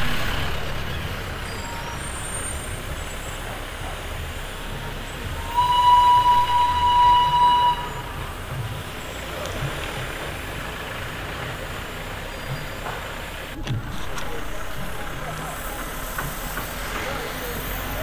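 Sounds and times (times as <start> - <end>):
vehicle running with road noise: 0.0 - 18.0
high-pitched toot: 5.4 - 8.2.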